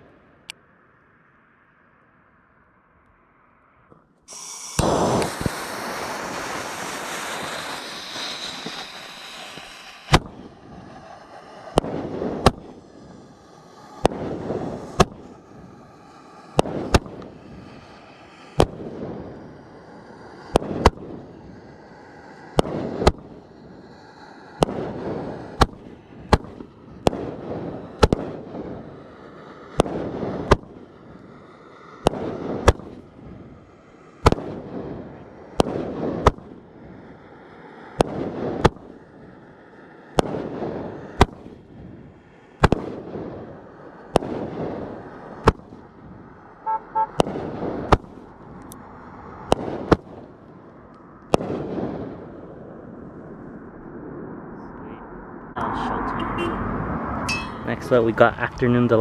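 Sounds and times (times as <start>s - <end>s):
fireworks cake firing shots: 4.3s - 13.2s, 13.9s - 15.5s, 16.4s - 19.5s, 20.4s - 21.4s, 22.4s - 23.5s, 24.6s - 28.9s, 29.7s - 31.0s, 31.9s - 33.2s, 34.2s - 36.6s, 37.9s - 39.1s, 40.1s - 42.0s, 42.6s - 48.3s, 49.4s - 50.3s, 51.3s - 52.3s
torch lighter hissing: 4.3s - 18.8s.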